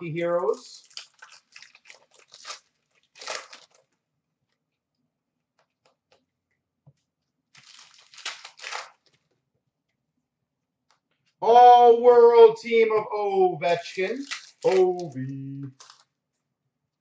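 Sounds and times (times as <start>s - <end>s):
foil wrapper crinkling and tearing: 0.5s - 4.0s, 7.5s - 9.3s, 14.0s - 16.2s.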